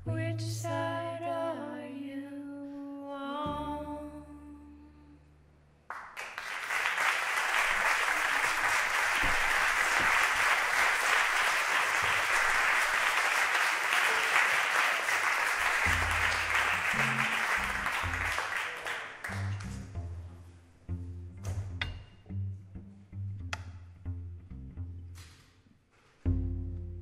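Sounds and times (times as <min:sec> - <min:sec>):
low plucked cello notes: 0:00.0 - 0:01.8, 0:03.3 - 0:05.2, 0:15.8 - 0:18.5, 0:19.3 - 0:25.2, 0:26.3 - 0:27.0
audience applauding: 0:05.9 - 0:19.8.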